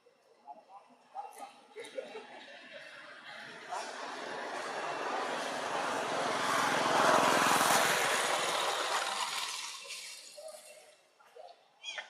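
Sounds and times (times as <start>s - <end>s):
vehicle engine passing by: 3.4s - 10.6s.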